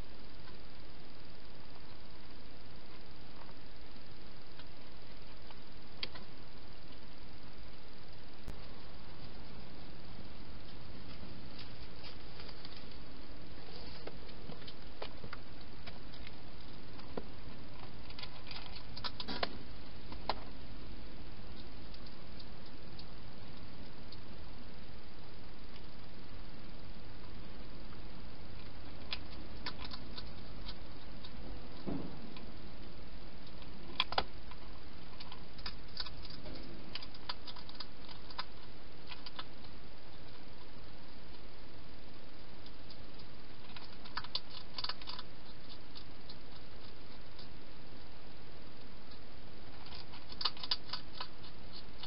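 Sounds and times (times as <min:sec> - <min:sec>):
steady hiss: 0:00.0 - 0:52.0
hedgehog eating crunches: 0:08.4 - 0:20.6, 0:21.4 - 0:24.4, 0:27.2 - 0:52.0.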